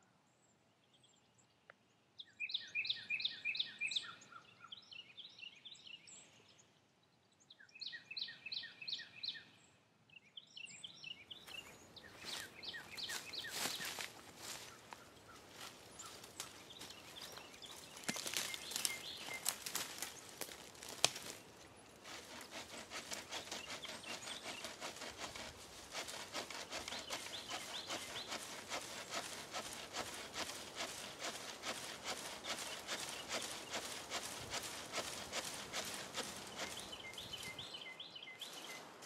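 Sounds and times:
dry twigs crackling and snapping: 15.5s - 21.5s, 24.9s - 37.2s
hand saw cutting branch: 22.0s - 37.6s.

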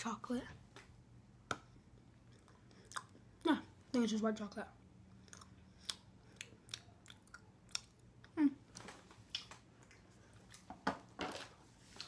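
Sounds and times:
person chewing: 1.9s - 3.4s, 5.1s - 10.7s.

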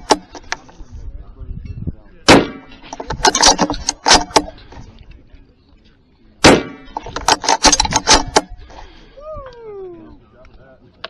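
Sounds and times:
loud gunshot: 2.3s - 2.7s, 6.4s - 6.9s
rifle metallic clicks: 6.4s - 8.6s.

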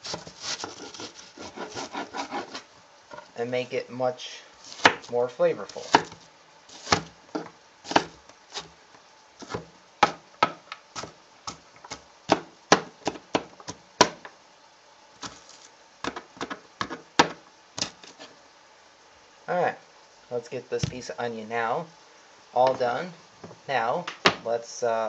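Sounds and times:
knife chopping on cutting board: 0.0s - 2.6s, 4.7s - 5.1s, 5.7s - 8.7s, 9.4s - 14.2s.

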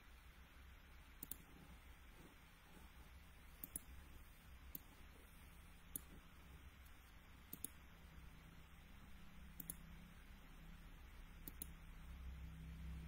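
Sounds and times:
low hum: 0.0s - 13.0s
computer mouse clicks: 1.2s - 1.6s, 3.5s - 4.0s, 4.7s - 5.1s, 5.9s - 7.8s, 9.5s - 9.9s, 11.4s - 11.8s.

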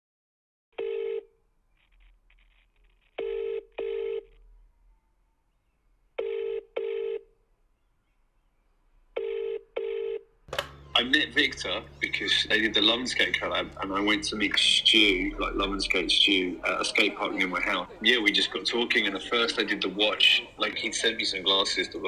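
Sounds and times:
telephone ringing tone: 0.8s - 1.4s, 3.2s - 4.4s, 6.2s - 7.3s, 9.2s - 10.3s.

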